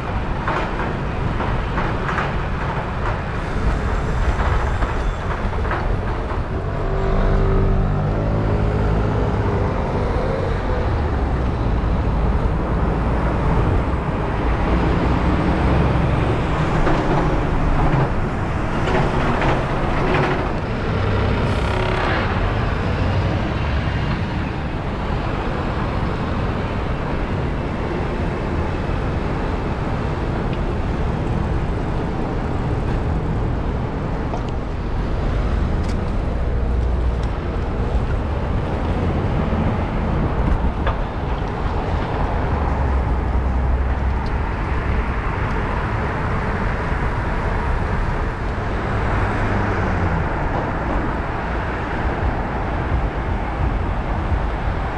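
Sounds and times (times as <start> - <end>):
city road traffic: 0.0 - 54.9.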